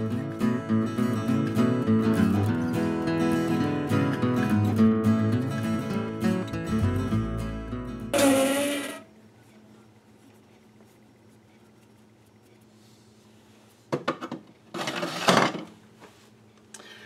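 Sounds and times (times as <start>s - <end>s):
acoustic guitar music: 0.0s - 9.1s
faint steady hum: 0.0s - 14.7s, 15.6s - 17.0s
short scraping rub: 8.2s - 9.1s.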